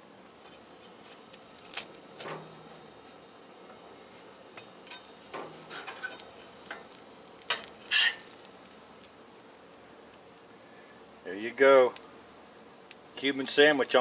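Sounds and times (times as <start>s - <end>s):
faint sizzle: 0.0s - 14.0s
metal spatula scraping griddle: 4.9s - 6.9s, 7.5s - 8.4s.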